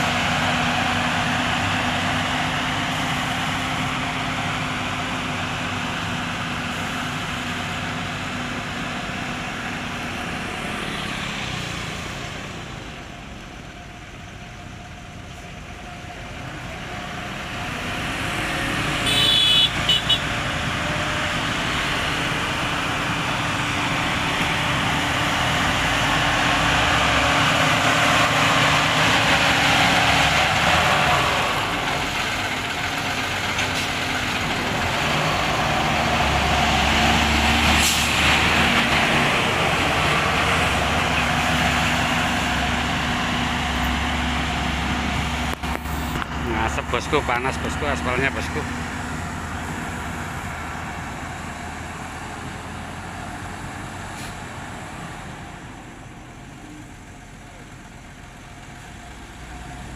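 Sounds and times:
dump truck passing: 0.0 - 59.9
road roller engine running: 0.0 - 59.9
vehicle horn short beeps: 19.1 - 20.2.

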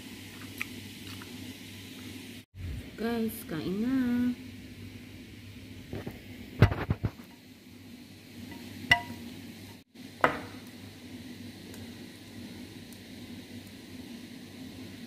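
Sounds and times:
steady low hum: 0.7 - 15.0
chopsticks knocking on bowl: 8.5 - 9.2.

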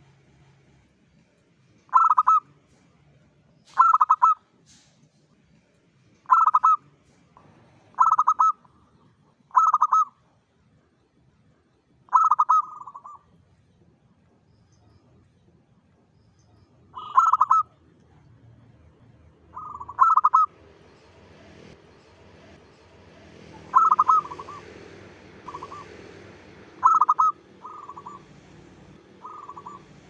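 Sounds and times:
dove cooing: 1.9 - 2.4, 3.8 - 4.4, 6.3 - 6.8, 7.9 - 8.7, 9.5 - 10.1, 12.1 - 13.2, 17.0 - 17.8, 19.5 - 20.6, 23.2 - 30.0.

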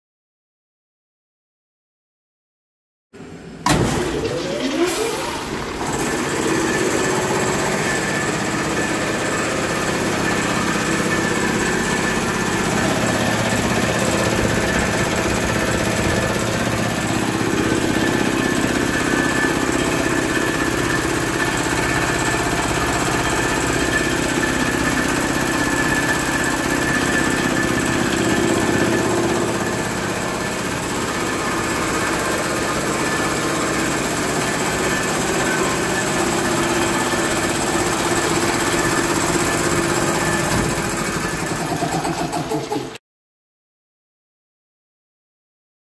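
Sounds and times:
air compressor running: 3.2 - 43.0
rising motor whine: 3.7 - 41.0.

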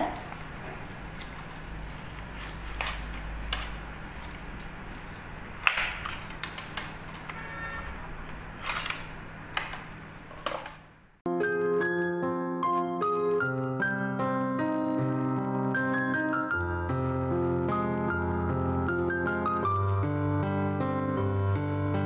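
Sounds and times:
cardboard box and wrappers crinkling: 0.0 - 7.4
piano music: 11.3 - 22.0.

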